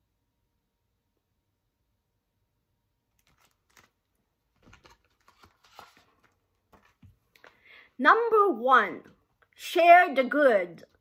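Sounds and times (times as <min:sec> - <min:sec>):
book pages rustling: 0:03.1 - 0:07.6
soft clicks of book handling: 0:03.2 - 0:07.6.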